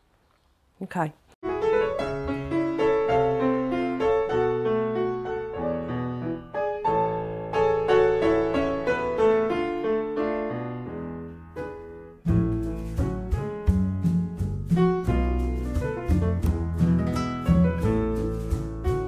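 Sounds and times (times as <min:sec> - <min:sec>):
slow piano tune: 0:01.4 - 0:19.0
music with drums and bass: 0:12.3 - 0:19.0.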